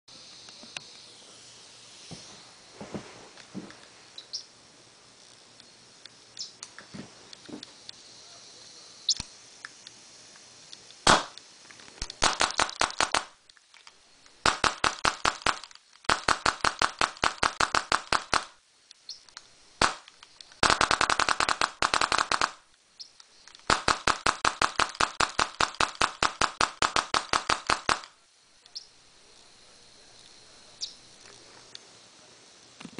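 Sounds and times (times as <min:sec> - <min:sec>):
paintball marker firing: 0:11.0 - 0:11.4, 0:12.0 - 0:13.4, 0:14.4 - 0:18.6, 0:19.8 - 0:22.6, 0:23.6 - 0:28.2.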